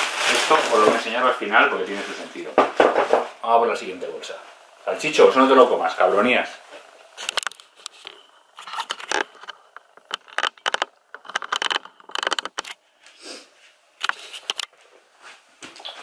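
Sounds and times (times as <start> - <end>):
plastic bag rustling: 0.0 - 3.3, 7.1 - 12.6.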